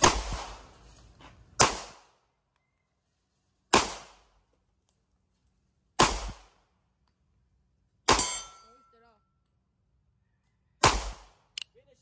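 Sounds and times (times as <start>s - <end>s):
pistol shots with echo: 1.6s - 2.1s, 3.7s - 4.3s, 6.0s - 6.6s, 8.1s - 8.6s, 10.8s - 11.5s.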